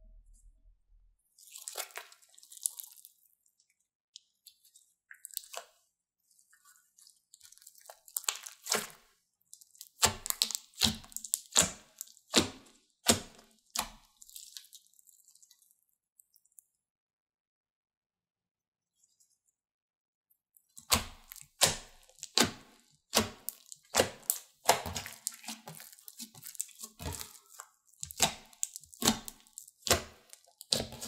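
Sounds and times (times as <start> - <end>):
hands squishing slime: 1.4 - 3.3, 4.3 - 15.8, 20.6 - 31.0
slime crackles and wet pops: 1.4 - 16.6, 20.6 - 31.0.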